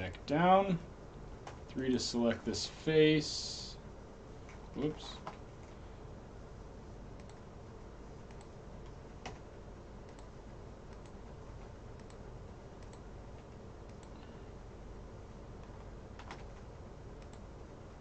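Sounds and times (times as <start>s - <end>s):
low background hum and hiss: 0.0s - 18.0s
keyboard and mouse clicks: 8.2s - 9.4s, 10.0s - 10.3s, 10.9s - 11.2s, 15.6s - 16.6s.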